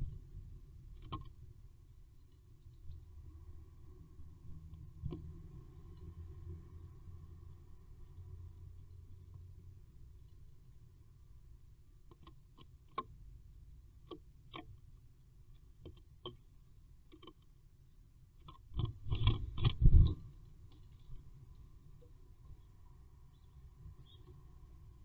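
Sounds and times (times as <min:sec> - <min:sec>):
bird scrabbling and thumping: 0:18.4 - 0:20.3.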